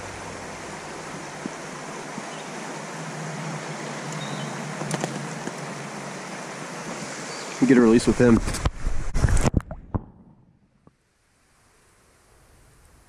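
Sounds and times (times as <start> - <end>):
creek water running over rocks: 0.0 - 10.0.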